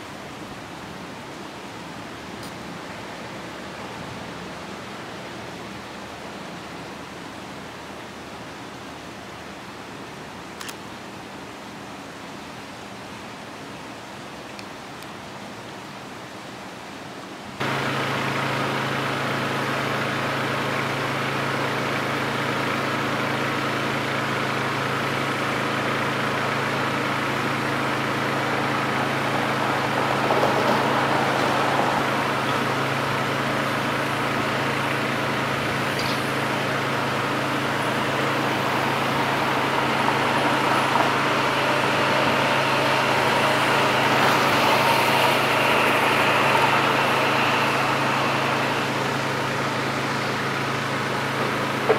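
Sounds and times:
road noise: 0:00.0 - 0:51.9
low engine hum: 0:17.6 - 0:51.9.

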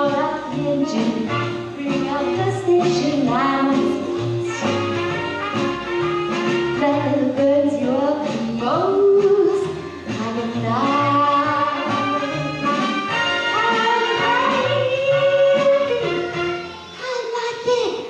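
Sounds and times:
woman singing jazzy song: 0:00.0 - 0:04.7, 0:06.6 - 0:12.4, 0:13.2 - 0:16.5
backing band: 0:00.0 - 0:17.4.

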